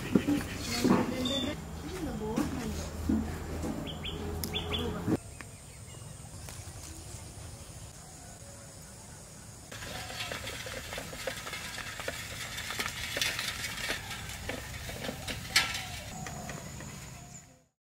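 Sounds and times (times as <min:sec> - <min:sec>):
cart wheels clicking and knocking: 0:09.7 - 0:17.4.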